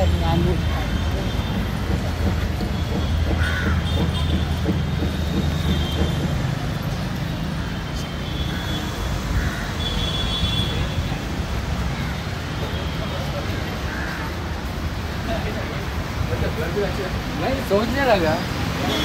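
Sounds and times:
traffic rumble: 0.0 - 19.0
crow caws: 3.3 - 3.9, 8.5 - 10.0, 13.8 - 14.6.

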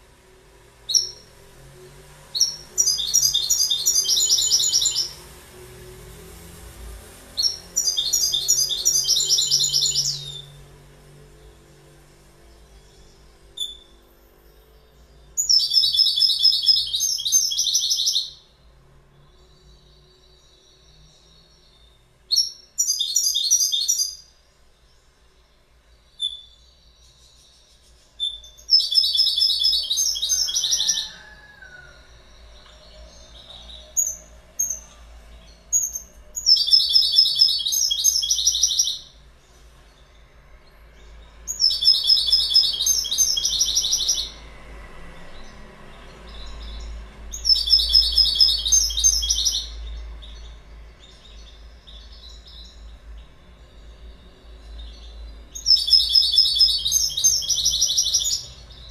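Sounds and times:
goldfinch twittering song: 0.9 - 1.3, 2.3 - 5.2, 7.4 - 10.6, 12.5 - 18.4, 19.1 - 31.5, 32.2 - 44.4, 45.3 - 58.9.

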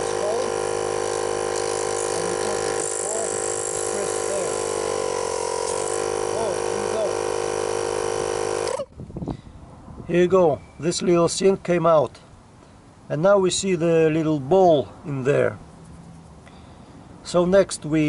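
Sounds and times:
air compressor humming: 0.0 - 8.9.

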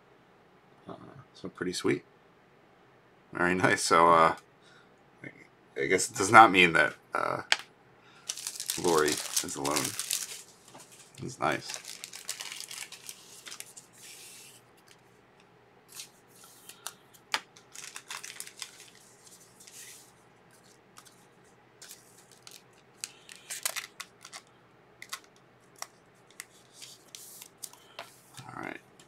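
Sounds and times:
trading cards scraping and rustling: 8.3 - 15.1, 15.9 - 28.5.

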